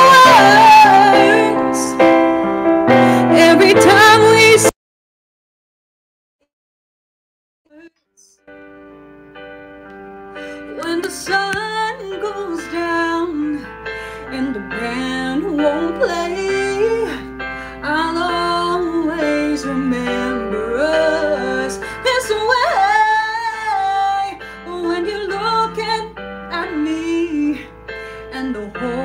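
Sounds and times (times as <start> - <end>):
woman singing: 0.0 - 2.3, 3.2 - 4.7, 7.7 - 8.4, 10.6 - 29.0
instrumental accompaniment: 8.4 - 21.8.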